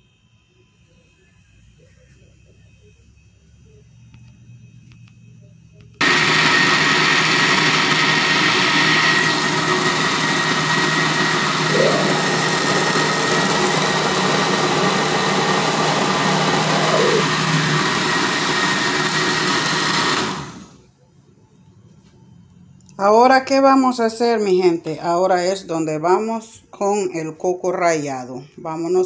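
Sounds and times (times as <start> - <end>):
blender whining: 6.0 - 20.9.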